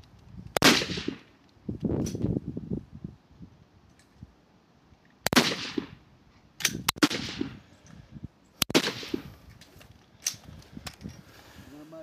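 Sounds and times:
rifle shots echoing: 0.6s - 1.3s, 5.3s - 6.0s, 6.9s - 7.6s, 8.6s - 9.3s.

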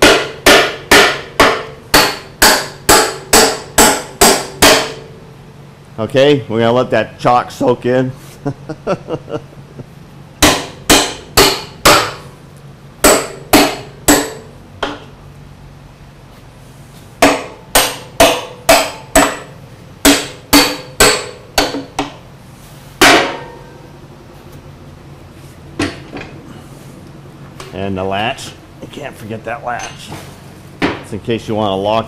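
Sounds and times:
hammer striking steel: 0.0s - 5.2s, 10.4s - 12.3s, 13.0s - 15.1s, 17.2s - 22.2s, 23.0s - 23.9s.

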